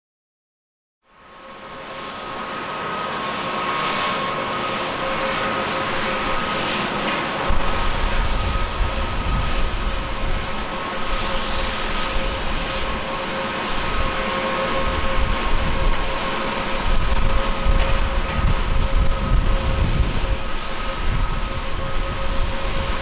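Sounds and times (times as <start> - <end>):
jet engines whining: 1.2 - 23.0
heavy low rumble: 14.8 - 23.0.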